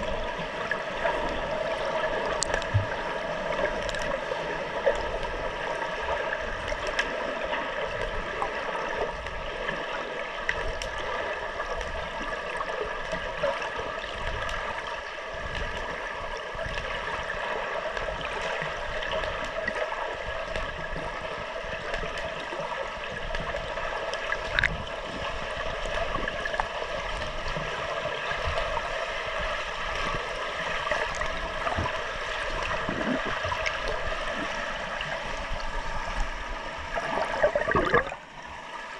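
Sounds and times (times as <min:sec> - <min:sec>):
underwater hiss and gurgle: 0:00.0 - 0:38.9
faint clicks: 0:02.3 - 0:02.9, 0:03.7 - 0:04.2, 0:23.3 - 0:24.8.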